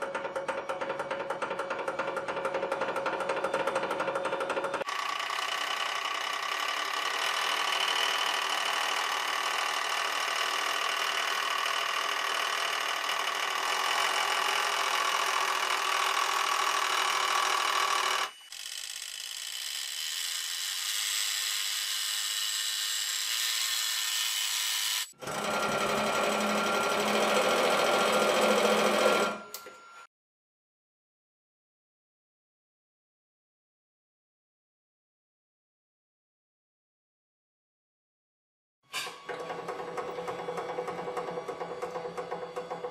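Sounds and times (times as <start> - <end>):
hydraulic pump motor running: 0.0 - 29.5, 39.0 - 42.9.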